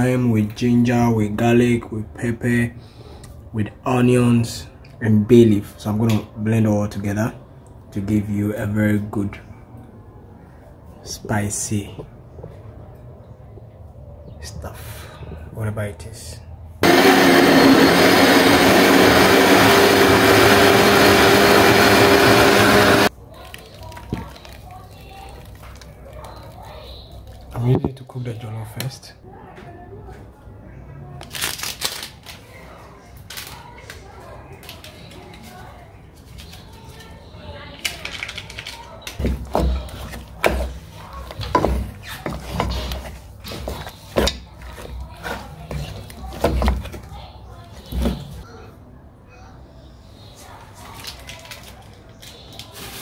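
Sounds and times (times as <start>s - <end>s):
blender motor whirring: 16.8s - 23.1s
wooden spoon stirring in metal pot: 39.2s - 47.2s.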